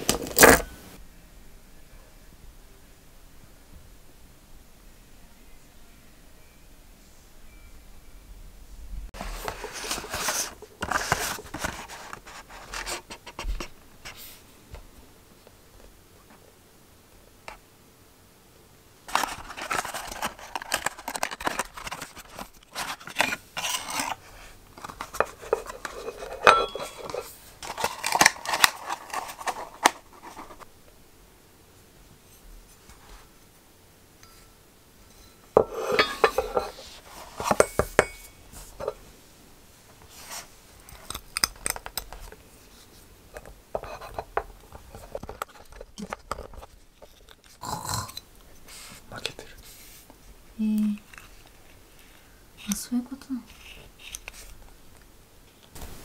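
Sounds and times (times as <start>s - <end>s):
cardboard box rustling: 19.1s - 30.6s
ceramic and metal clinking on wood: 24.9s - 27.3s, 35.2s - 36.8s, 37.4s - 39.0s.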